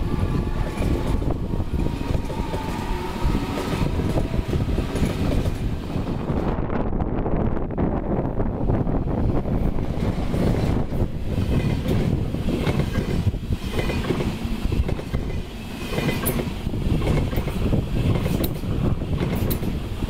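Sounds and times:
train wheels rumbling on rails: 0.0s - 20.0s
wheels clacking over rail joints: 0.4s - 6.1s, 9.6s - 19.9s.

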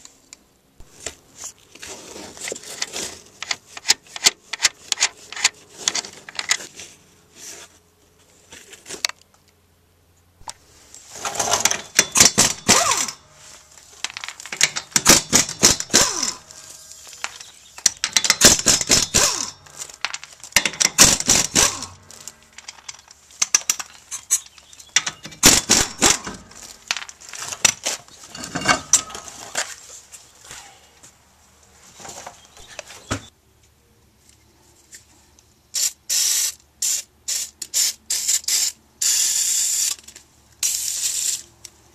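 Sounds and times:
lug nuts clicking and rattling: 11.2s - 13.2s, 13.9s - 29.3s.

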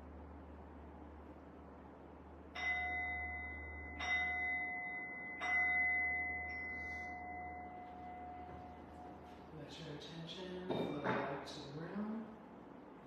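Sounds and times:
singing bowl struck and ringing: 2.6s - 9.4s.

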